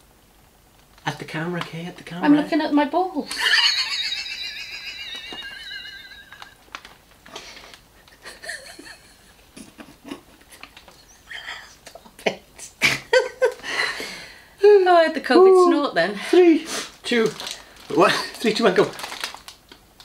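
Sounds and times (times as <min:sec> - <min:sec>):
breathy giggling: 0:03.3 - 0:06.6, 0:08.0 - 0:14.0
squealing laughter: 0:03.3 - 0:06.6, 0:08.2 - 0:12.0.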